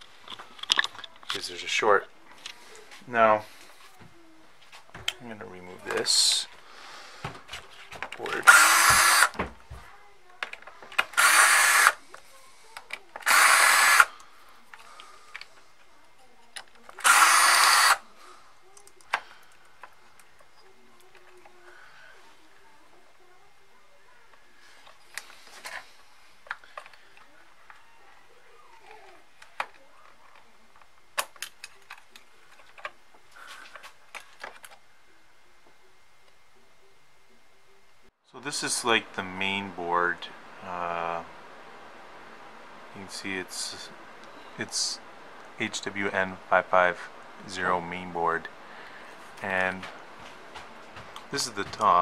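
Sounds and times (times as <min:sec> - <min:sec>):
cordless drill motor: 0:08.4 - 0:09.5, 0:11.0 - 0:12.0, 0:13.2 - 0:14.2, 0:17.0 - 0:18.0.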